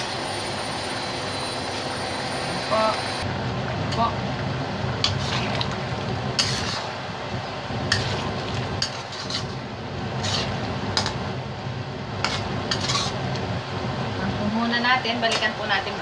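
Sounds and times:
steady low hum: 0.0 - 16.0
utensil scraping metal wok: 5.0 - 5.7, 6.3 - 7.0, 7.9 - 11.2, 12.2 - 13.4.

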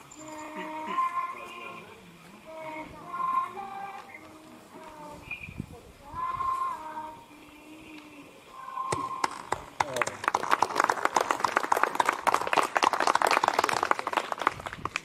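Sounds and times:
people clapping: 8.9 - 15.0.

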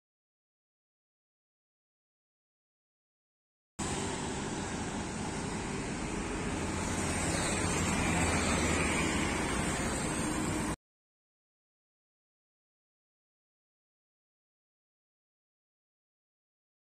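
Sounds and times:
tractor diesel engine running: 3.8 - 10.8.

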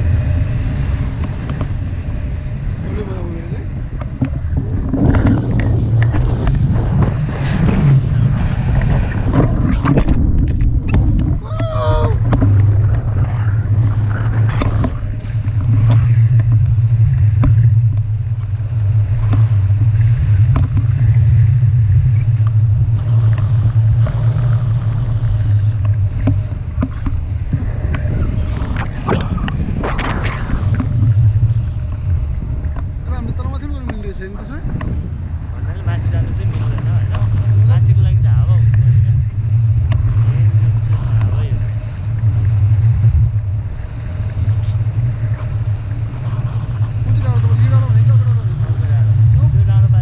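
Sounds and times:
wind buffeting microphone: 0.0 - 50.0.

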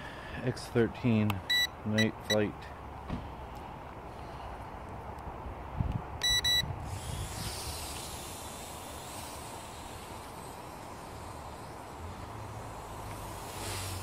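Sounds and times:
high electronic beeps: 1.5 - 2.4, 6.2 - 6.7
steady hiss: 6.8 - 14.0.

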